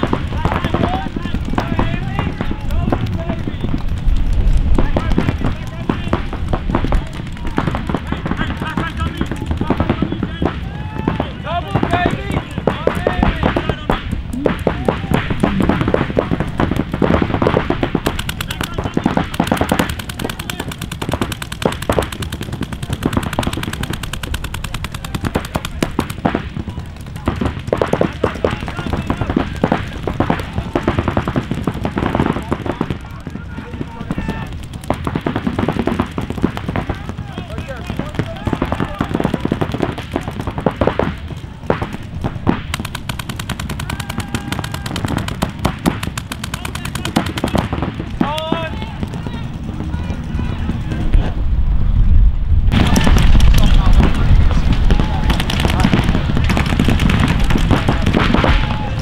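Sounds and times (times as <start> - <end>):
paintball markers firing: 0.0 - 51.3, 52.7 - 59.0.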